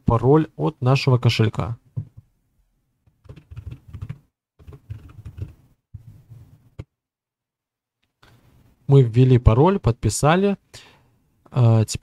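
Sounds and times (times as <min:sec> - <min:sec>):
keyboard typing: 0:03.2 - 0:05.6.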